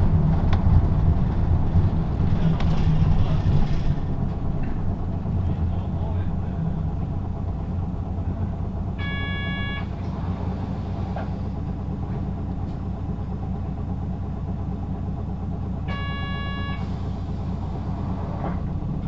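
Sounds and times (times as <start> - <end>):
bus engine rumble: 0.0 - 19.0
short electronic tone: 9.0 - 9.9, 15.9 - 16.9.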